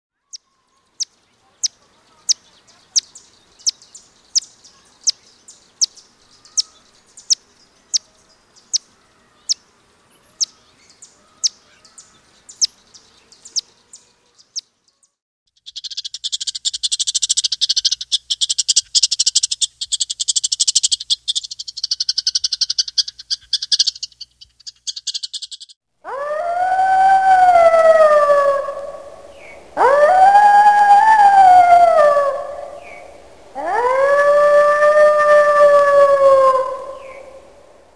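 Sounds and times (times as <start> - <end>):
wolf howling: 26.0 - 37.6.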